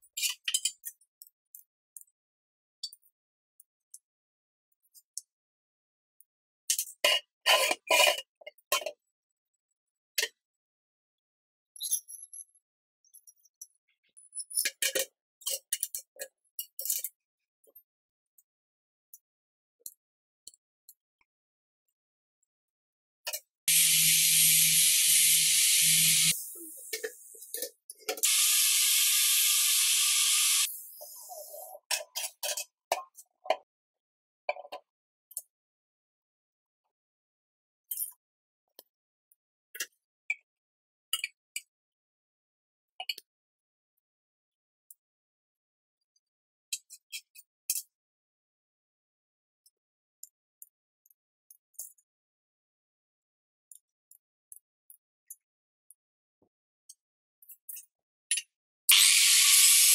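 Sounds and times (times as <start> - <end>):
angle grinder cutting steel: 23.7 - 26.4, 28.2 - 30.7, 58.9 - 59.9.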